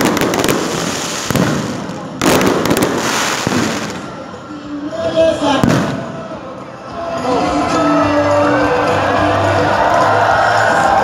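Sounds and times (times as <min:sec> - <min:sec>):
fireworks bangs: 0:00.0 - 0:04.3, 0:05.6 - 0:06.2
fireworks crackling and pops: 0:00.0 - 0:04.3, 0:05.6 - 0:06.1.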